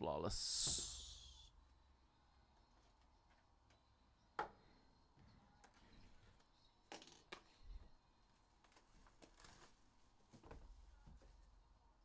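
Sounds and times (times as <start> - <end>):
plastic wrap crinkling: 8.7 - 9.8.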